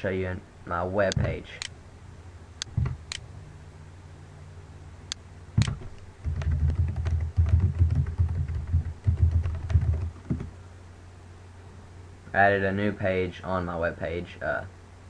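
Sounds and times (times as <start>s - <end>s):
computer keyboard typing: 5.6s - 10.5s.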